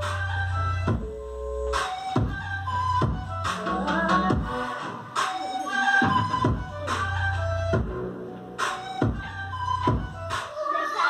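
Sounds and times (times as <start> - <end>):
music with steady beat: 0.0 - 11.0.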